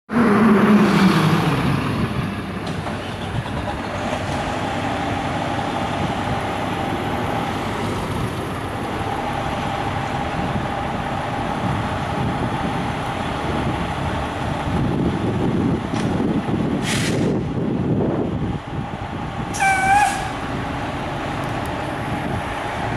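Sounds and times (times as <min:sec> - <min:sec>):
vehicle passing by: 0:00.1 - 0:15.0
rush of passing cars: 0:00.1 - 0:22.9.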